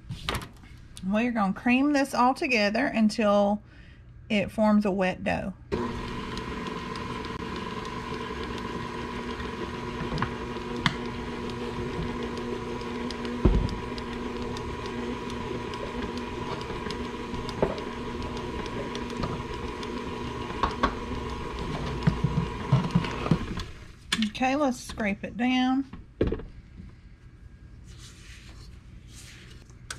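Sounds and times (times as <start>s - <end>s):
electric mixer motor running: 5.7s - 23.8s
thump: 13.4s - 13.7s.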